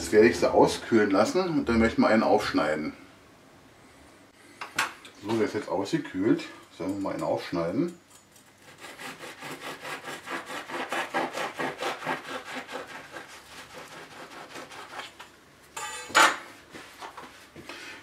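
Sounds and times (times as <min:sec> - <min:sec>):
bread knife sawing through bagel: 0:08.6 - 0:15.2.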